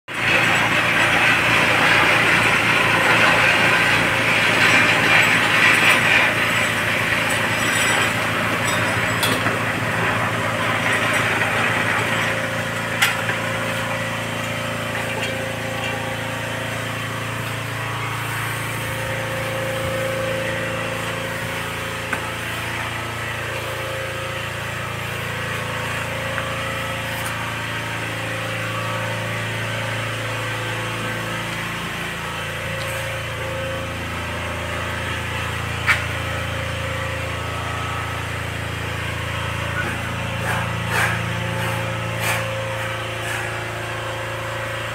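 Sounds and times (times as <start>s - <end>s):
motor humming: 0.2s - 44.9s.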